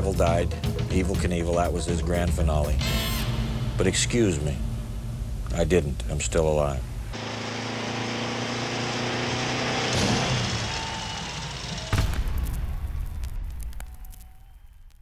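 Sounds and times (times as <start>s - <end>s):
sudden loud rushing noise: 3.0s - 5.4s.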